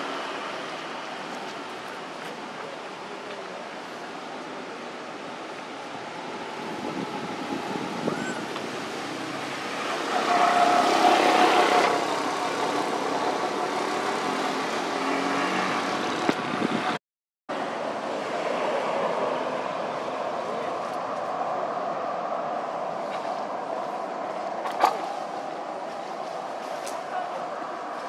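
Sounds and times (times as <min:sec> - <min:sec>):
motor vehicle passing: 0:06.0 - 0:16.8.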